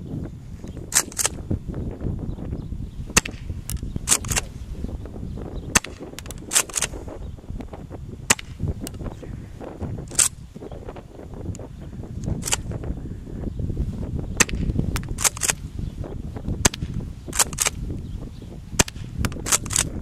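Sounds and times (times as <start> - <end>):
low wind rumble on microphone: 0.0 - 20.0
airsoft shotgun pops: 3.2 - 4.5, 5.7 - 6.9, 8.3 - 9.0, 14.4 - 15.6, 16.6 - 17.8, 18.8 - 19.9.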